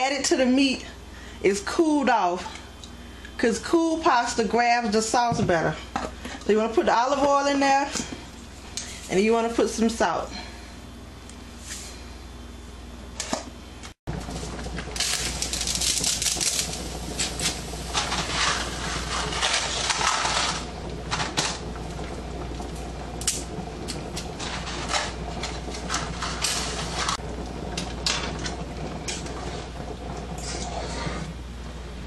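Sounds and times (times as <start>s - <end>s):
boiling water crackling and hissing: 0.0s - 12.2s, 14.1s - 32.0s
fork stirring in saucepan: 30.4s - 31.3s.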